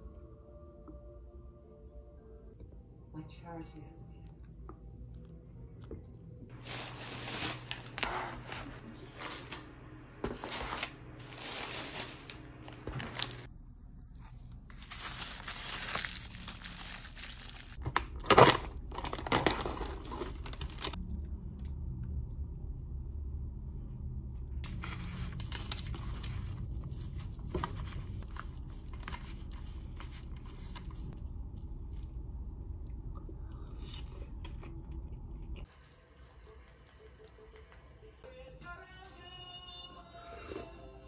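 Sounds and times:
plastic packaging crinkling: 6.5 - 9.6, 10.4 - 13.5, 14.7 - 21.0, 24.6 - 31.2
sharp plastic crack: 17.8 - 21.0.

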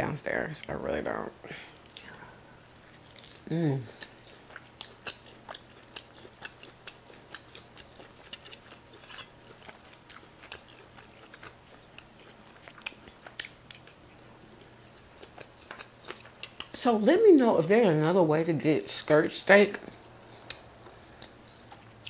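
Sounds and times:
person chewing and smacking: 2.9 - 16.8, 19.9 - 22.0.

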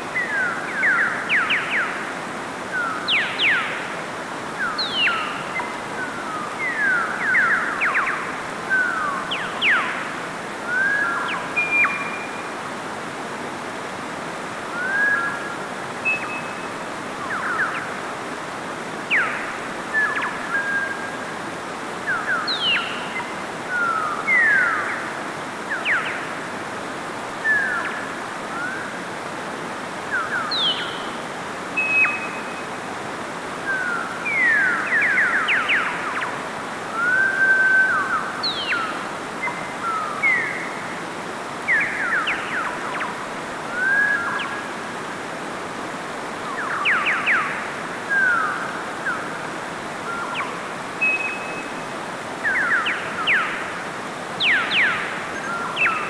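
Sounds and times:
stream rushing over rocks: 0.0 - 56.0
songbirds chirping and whistling: 2.7 - 3.9, 4.6 - 10.1, 10.7 - 12.5, 14.8 - 18.0, 22.0 - 26.4, 30.1 - 32.8, 33.6 - 40.9, 41.6 - 44.8, 46.4 - 49.4, 50.0 - 56.0.

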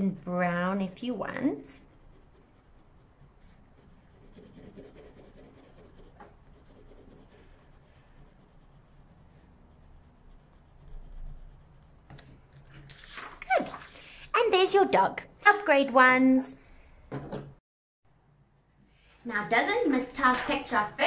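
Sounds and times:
pencil scribbling on paper: 0.0 - 12.1.

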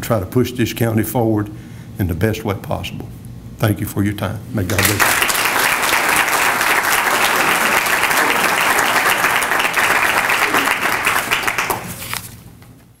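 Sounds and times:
audience applauding: 4.7 - 12.2.

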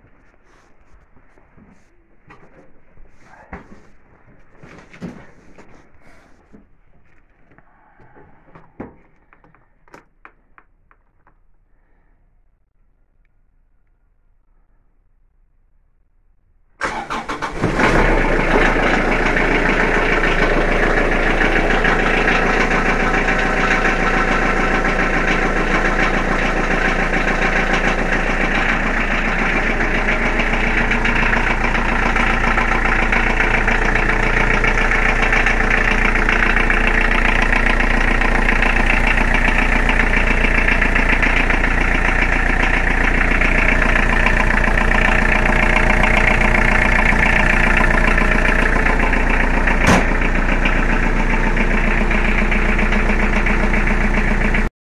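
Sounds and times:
diesel tractor engine starting: 16.8 - 54.7.

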